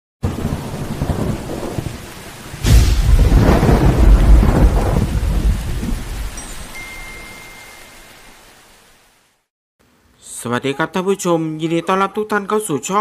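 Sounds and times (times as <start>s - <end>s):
thunderclap with low rumble: 0.2s - 6.4s
steady rain: 0.2s - 9.5s.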